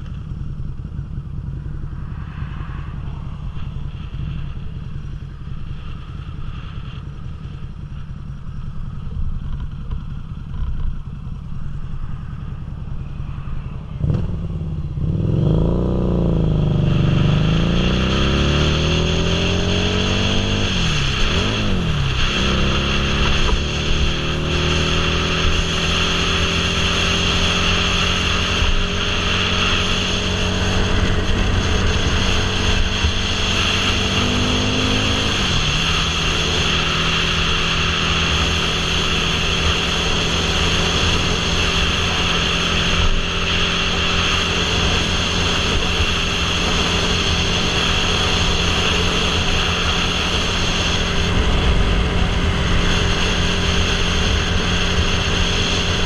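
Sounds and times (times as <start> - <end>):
motorcycle engine running: 0.0 - 56.0
wind rush on microphone: 13.6 - 56.0.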